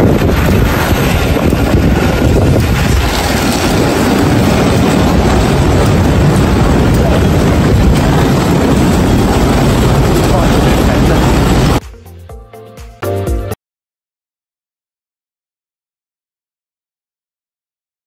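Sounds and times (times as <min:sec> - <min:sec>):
aircraft and vehicle engines rumbling: 0:00.0 - 0:11.8
wind buffeting microphone: 0:00.0 - 0:11.8.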